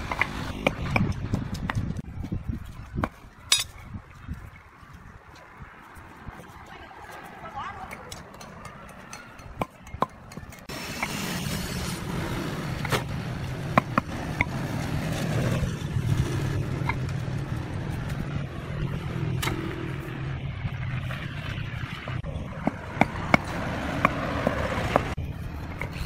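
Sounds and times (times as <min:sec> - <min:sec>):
mallet tapping pavers: 0:07.8 - 0:10.7.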